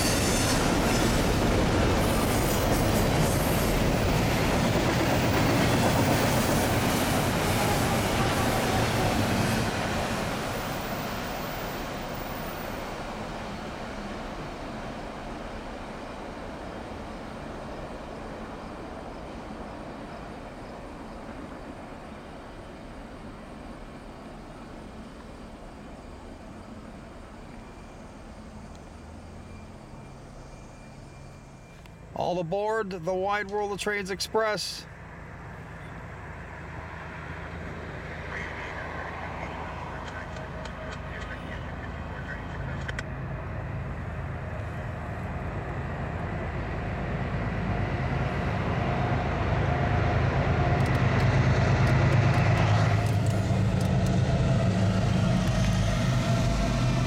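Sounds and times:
steel wheels clattering on rail: 0.0 - 12.9, 50.4 - 57.0
freight train rolling past: 0.0 - 57.0
outdoor background noise: 0.0 - 57.0
low engine rumble: 12.8 - 57.0.

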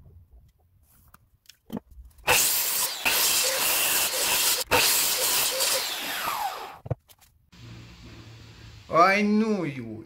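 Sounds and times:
mitre saw cutting wood: 2.3 - 6.8.

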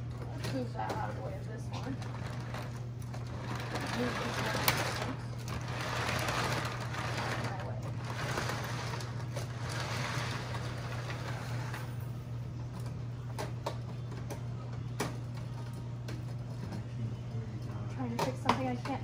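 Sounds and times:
low electrical hum: 0.0 - 19.0
toy train rolling on track: 1.9 - 12.0.

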